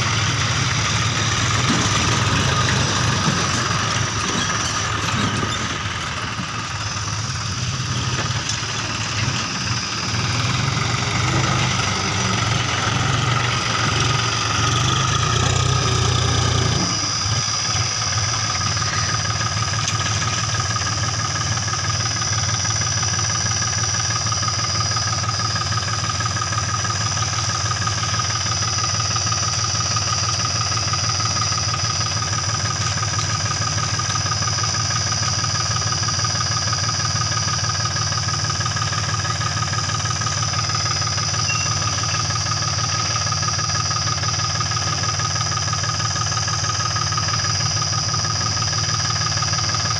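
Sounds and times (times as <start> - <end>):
steady high whine: 0.0 - 36.2
diesel tractor engine running: 0.0 - 49.9.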